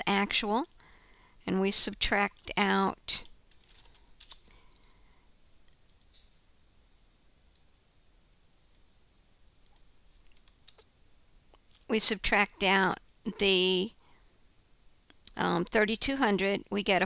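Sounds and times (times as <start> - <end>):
computer keyboard and mouse clicks: 3.5 - 4.9, 5.7 - 6.2, 9.6 - 10.9.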